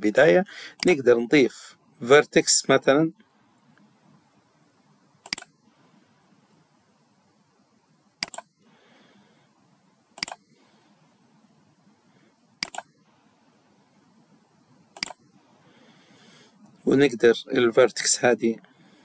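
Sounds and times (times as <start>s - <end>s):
faint room hiss: 0.0s - 19.0s
computer mouse clicks: 5.2s - 5.6s, 8.2s - 8.5s, 10.2s - 10.5s, 12.6s - 13.0s, 14.9s - 15.2s.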